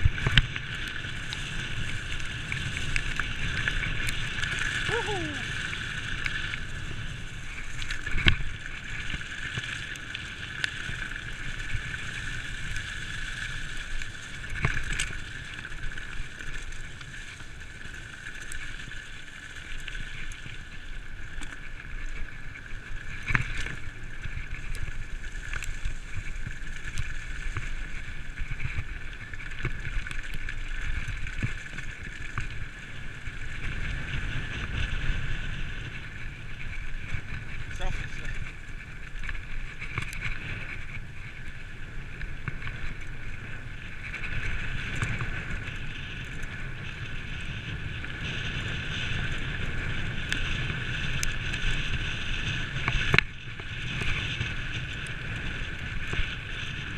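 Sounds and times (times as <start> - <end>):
wind on microphone: 0.0 - 10.3, 21.6 - 56.9
bike rattling over dirt trail: 0.0 - 56.9.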